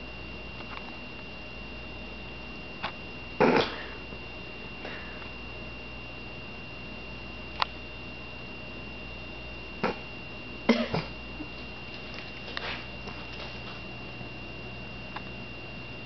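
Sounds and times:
faint high-pitched whine: 0:00.0 - 0:16.0.

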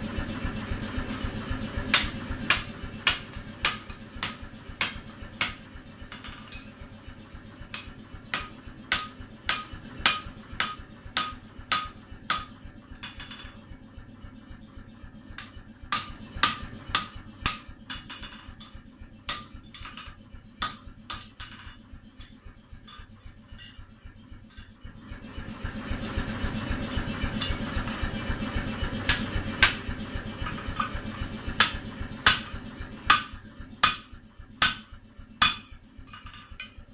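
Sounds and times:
hammer striking steel on anvil: 0:01.9 - 0:06.9, 0:07.6 - 0:13.6, 0:15.4 - 0:24.8, 0:27.2 - 0:28.1, 0:29.0 - 0:36.9.

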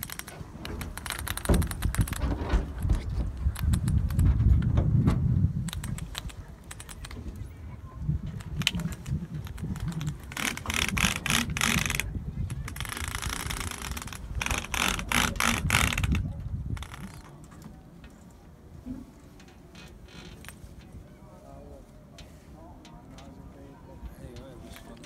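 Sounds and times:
sharp clicks and rattles: 0:00.0 - 0:07.4, 0:08.2 - 0:18.2, 0:19.4 - 0:21.0
wind rumble on microphone: 0:00.0 - 0:17.4.

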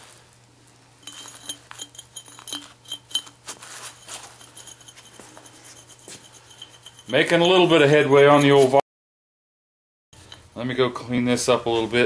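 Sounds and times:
metal washer clinking on screw: 0:01.0 - 0:08.6.

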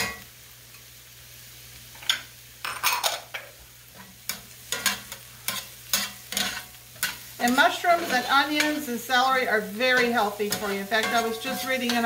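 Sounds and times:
faint sizzle of butter: 0:00.0 - 0:12.0
utensil scraping a skillet: 0:03.9 - 0:12.0.

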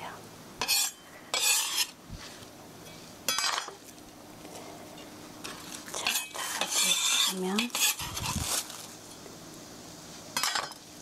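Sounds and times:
utensil scraping a dish: 0:00.6 - 0:02.0, 0:05.5 - 0:08.6.

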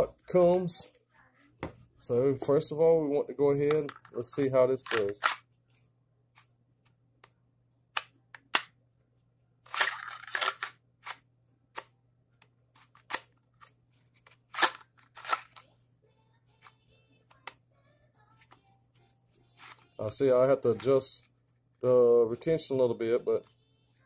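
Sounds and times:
pistol clicking into holster: 0:14.6 - 0:15.4.

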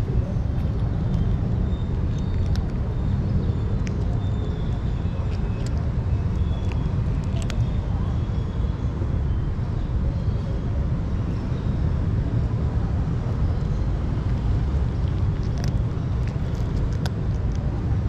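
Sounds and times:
cat crunching dry kibble: 0:00.0 - 0:08.1, 0:13.6 - 0:18.0
low outdoor rumble: 0:00.0 - 0:18.0.

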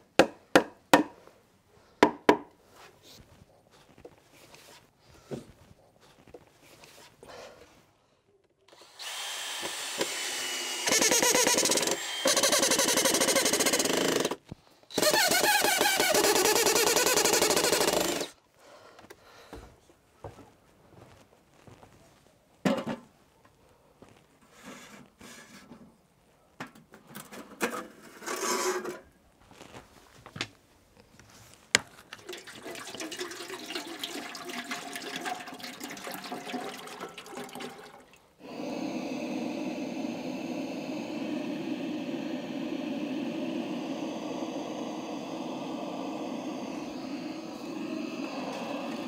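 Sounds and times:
butane torch hissing: 0:08.9 - 0:18.3, 0:37.3 - 0:49.0
water pouring from plastic bottle: 0:31.9 - 0:38.4.

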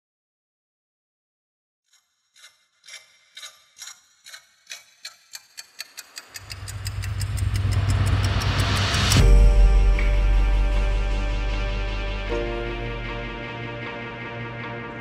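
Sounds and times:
ticking sound effect: 0:01.9 - 0:10.2
rising whoosh: 0:06.4 - 0:14.9
deep bass drone: 0:06.4 - 0:15.0.

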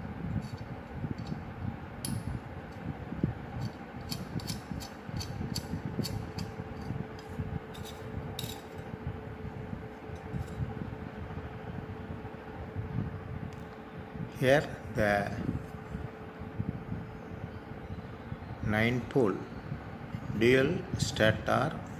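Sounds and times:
faint steady hum: 0:00.0 - 0:21.9.

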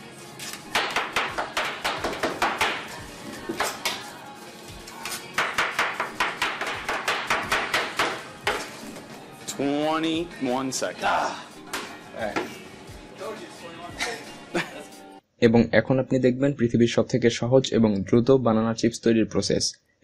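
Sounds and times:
knife chopping on plastic board: 0:00.7 - 0:02.9, 0:05.4 - 0:08.7.

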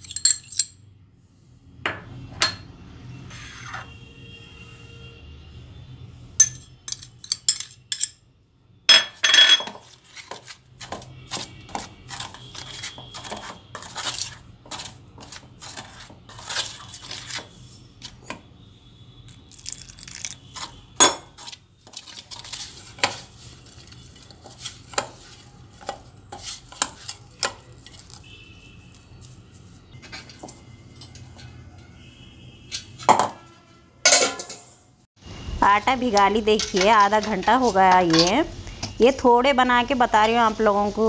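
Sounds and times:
glass bowl clinking on metal: 0:06.4 - 0:08.2, 0:08.9 - 0:09.8
hand mixing dough in metal bowl: 0:09.8 - 0:18.3, 0:19.3 - 0:30.7, 0:35.8 - 0:41.0.

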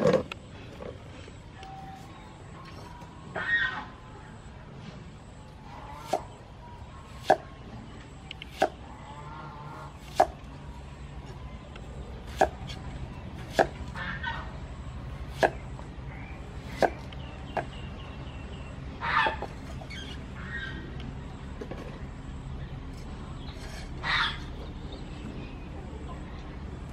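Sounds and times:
knife chopping on wooden board: 0:10.0 - 0:10.4, 0:12.3 - 0:12.6.

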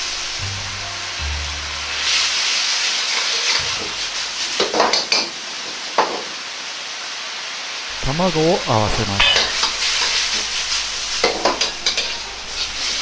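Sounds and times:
sauce sizzling in a wok: 0:00.0 - 0:13.0
metal ladle clacking on wok: 0:09.2 - 0:10.2.

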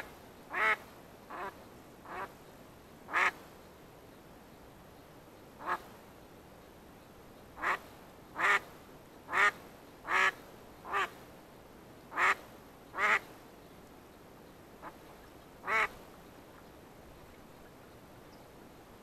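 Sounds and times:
duck quacking: 0:00.5 - 0:02.3, 0:08.4 - 0:08.6, 0:09.3 - 0:11.1, 0:12.1 - 0:12.4, 0:13.0 - 0:13.2, 0:15.6 - 0:15.9.

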